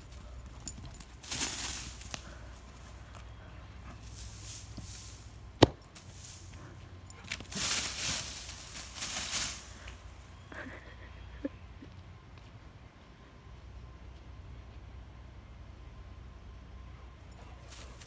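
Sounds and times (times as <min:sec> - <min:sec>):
dog paws running through dry leaves: 0:00.0 - 0:03.2, 0:03.8 - 0:10.2.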